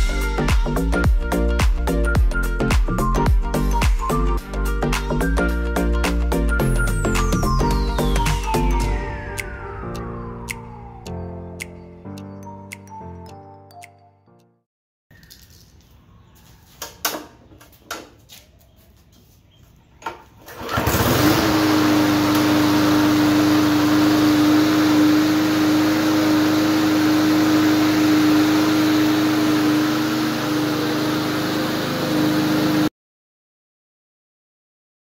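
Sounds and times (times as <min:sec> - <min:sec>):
lawn mower engine running: 0:20.4 - 0:32.9.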